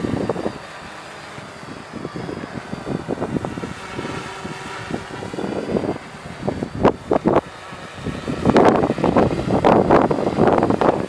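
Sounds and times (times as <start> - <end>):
drone propellers humming: 0.0 - 11.0
wind buffeting microphone: 0.0 - 11.0.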